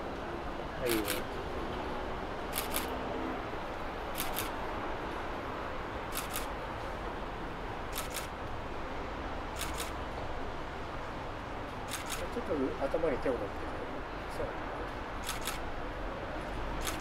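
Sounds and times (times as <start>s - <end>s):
camera shutter double click: 0.9s - 1.2s, 2.5s - 2.9s, 4.2s - 4.5s, 6.1s - 6.5s, 7.9s - 8.3s, 9.6s - 10.0s, 11.9s - 12.2s, 15.2s - 15.6s, 16.8s - 17.0s.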